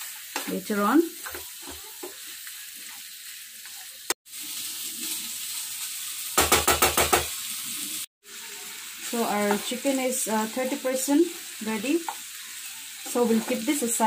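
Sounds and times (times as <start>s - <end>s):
chicken sizzling in oil: 0.0s - 14.0s.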